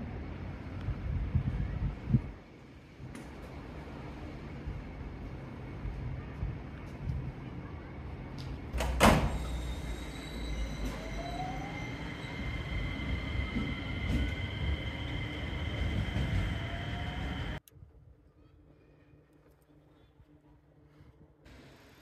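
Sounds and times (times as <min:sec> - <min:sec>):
faint outdoor background: 0:00.0 - 0:22.0
wheels rumbling on rail: 0:08.7 - 0:17.6
electric train motor whine: 0:09.3 - 0:17.6.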